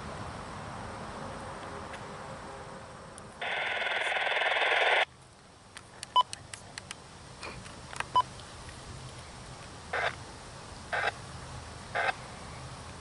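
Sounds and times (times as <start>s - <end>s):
scattered clicks: 5.8s - 7.0s.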